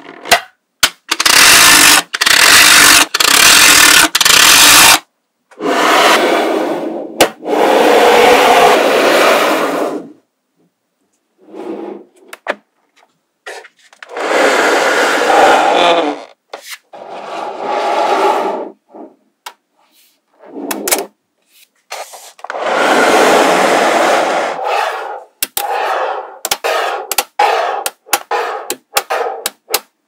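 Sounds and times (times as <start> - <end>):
magnetic balls scraping on board: 24.0 - 29.8.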